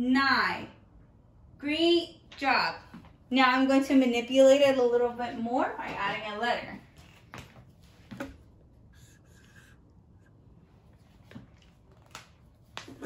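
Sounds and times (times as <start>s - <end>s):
marker scratching on whiteboard: 8.9s - 10.4s.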